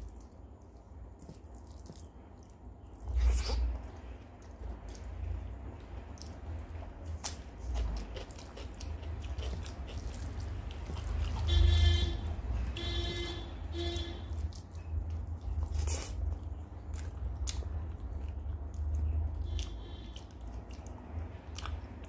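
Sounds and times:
fingers squelching food: 0.0s - 5.2s
wet chewing: 0.0s - 11.7s, 14.3s - 22.0s.

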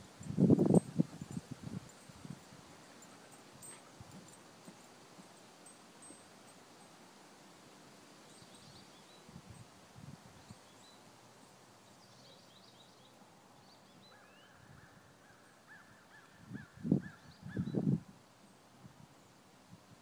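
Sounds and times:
small birds chirping faintly: 0.0s - 20.0s.

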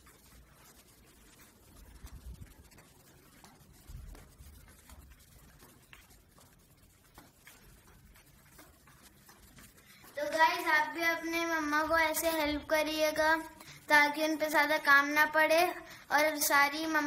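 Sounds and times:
soft low thumps: 1.5s - 12.9s.

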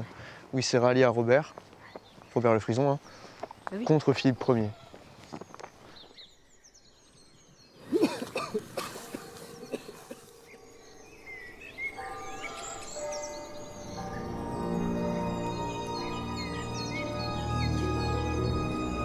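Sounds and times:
birds chirping: 0.0s - 19.0s
soft ambient music: 6.6s - 19.0s.

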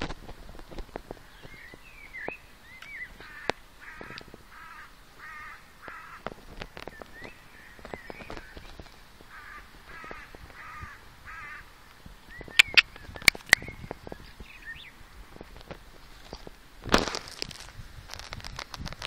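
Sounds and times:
crow cawing: 3.2s - 6.3s, 9.3s - 11.7s.

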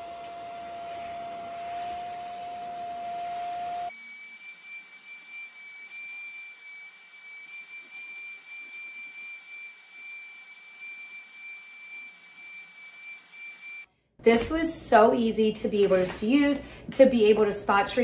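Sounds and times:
spot cleaner suction motor: 0.0s - 13.8s.

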